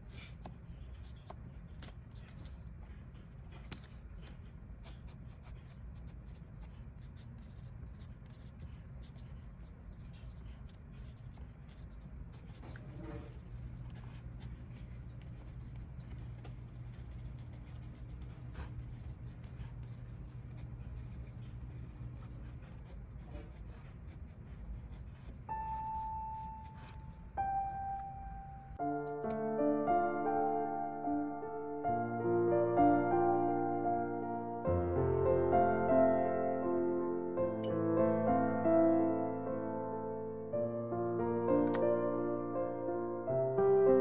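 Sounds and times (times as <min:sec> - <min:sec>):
steady low hum: 0:00.0 - 0:29.0
pencil scratching on paper: 0:04.8 - 0:27.1.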